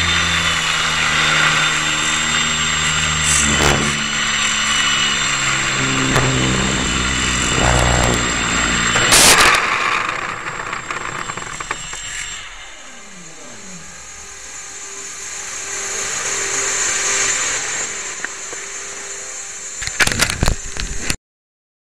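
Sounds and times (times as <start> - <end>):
loud burst of noise: 0.0 - 13.1
small motor humming: 0.0 - 21.0.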